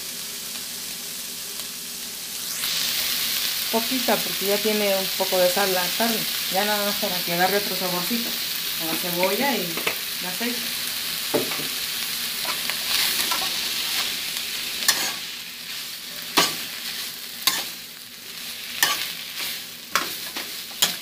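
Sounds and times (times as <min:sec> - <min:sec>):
food sizzling in hot oil: 0:00.0 - 0:21.0
spoon knocking against pan: 0:11.3 - 0:11.7.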